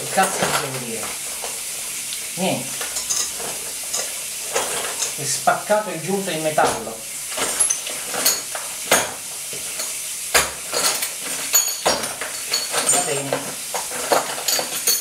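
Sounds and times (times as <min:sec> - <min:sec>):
tap water splashing into sink: 0:06.5 - 0:10.8.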